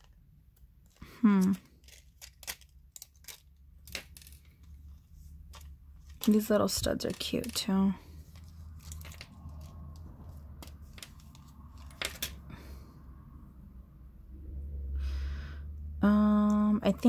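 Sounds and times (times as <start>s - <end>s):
low hum: 7.9s - 17.0s.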